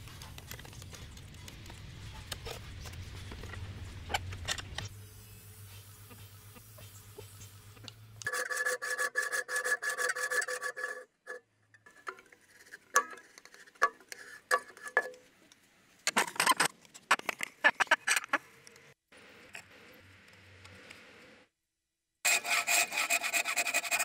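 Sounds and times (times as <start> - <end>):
scraping strokes on wood: 5.7 - 15.1, 22.3 - 24.0.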